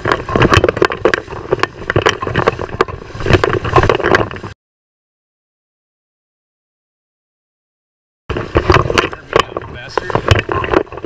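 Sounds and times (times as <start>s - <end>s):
water splashing against camera: 0.0s - 4.6s, 8.3s - 11.0s.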